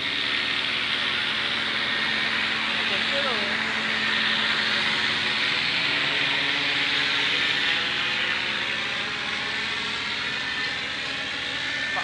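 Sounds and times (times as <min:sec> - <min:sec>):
rc helicopter whine and hiss: 0:00.0 - 0:12.0.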